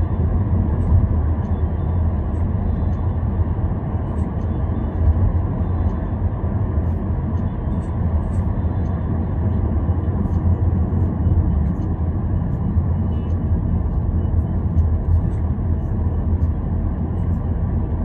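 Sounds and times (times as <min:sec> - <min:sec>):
car engine and tyre rumble: 0:00.0 - 0:18.0.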